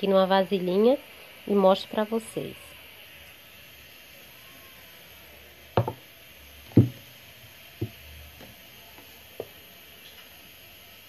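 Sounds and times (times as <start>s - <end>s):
plastic blender jar knocking: 5.8s - 6.0s, 6.8s - 7.0s.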